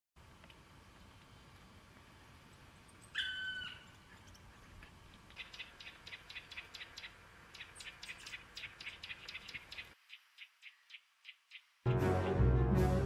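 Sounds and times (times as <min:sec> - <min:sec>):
animal call: 0:03.1 - 0:04.0.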